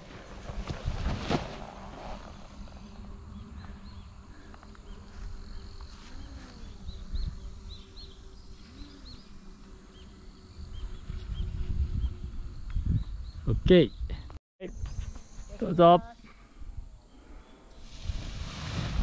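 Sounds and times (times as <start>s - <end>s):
wind rumbling on microphone: 0.0s - 4.3s, 5.3s - 8.2s, 10.5s - 15.1s, 17.8s - 19.0s.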